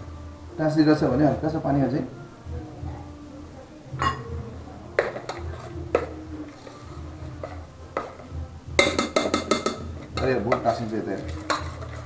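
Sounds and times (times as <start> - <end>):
metal spoon stirring oats in pot: 5.0 - 12.0.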